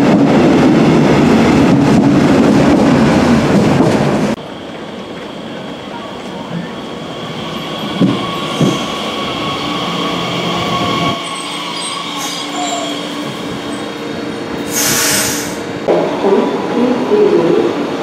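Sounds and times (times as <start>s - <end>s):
electric train whine: 4.2s - 17.4s
wheel squeal: 7.7s - 13.9s
burst of hiss: 14.7s - 15.7s.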